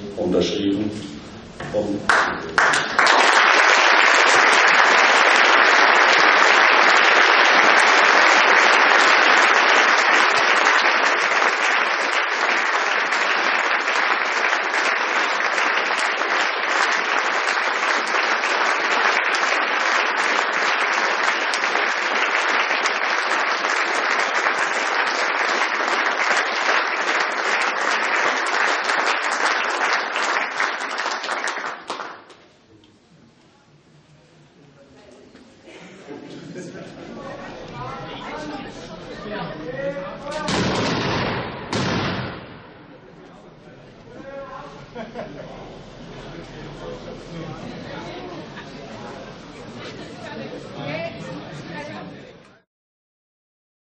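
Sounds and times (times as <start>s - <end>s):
audience applauding: 2.1s - 32.4s.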